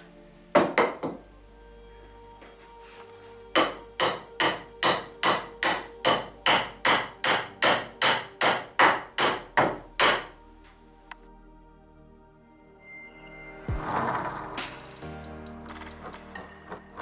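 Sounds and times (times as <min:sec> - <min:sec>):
hammer driving nails into wood: 0:00.6 - 0:01.2, 0:03.6 - 0:10.4.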